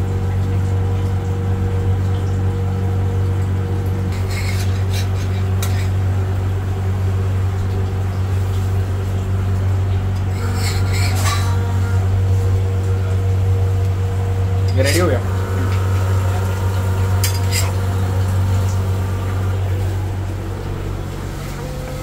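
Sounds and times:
kitchen machinery hum: 0.0s - 22.0s
metal spatula scraping griddle: 4.1s - 6.0s, 10.3s - 12.0s, 17.2s - 18.2s.

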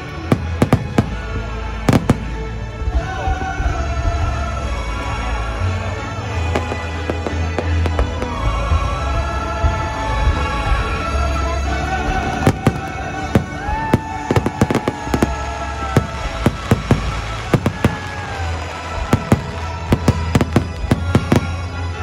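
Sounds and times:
fireworks bangs: 0.0s - 2.6s, 12.1s - 22.0s
music over loudspeakers: 0.0s - 22.0s.

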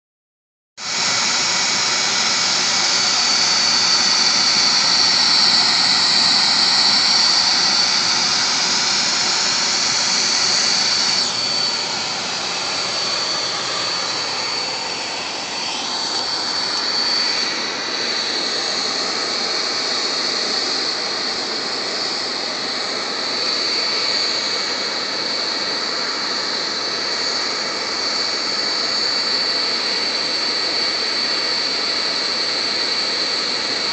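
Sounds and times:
high whine: 0.8s - 33.9s.

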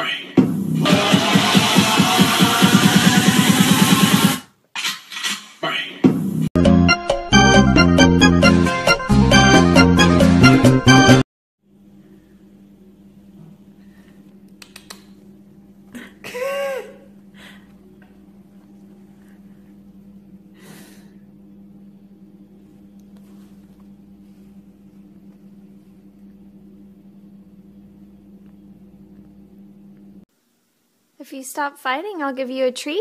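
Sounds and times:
steady low hum: 11.6s - 31.2s.

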